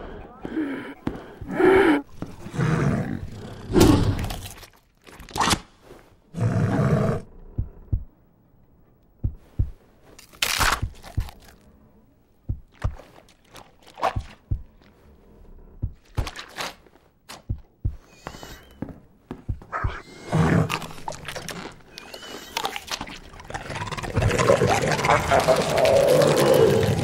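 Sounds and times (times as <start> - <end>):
scraping crunching noises: 9.4 - 12.0, 12.6 - 27.0.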